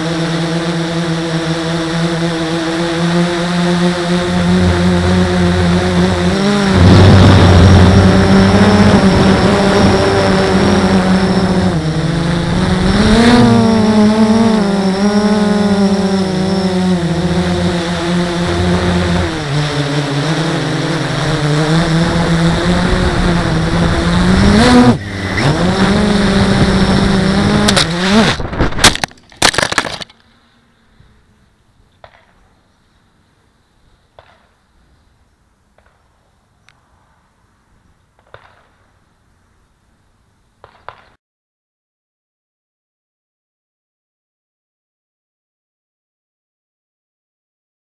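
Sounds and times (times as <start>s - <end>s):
quadcopter motors whining: 0.0s - 32.3s.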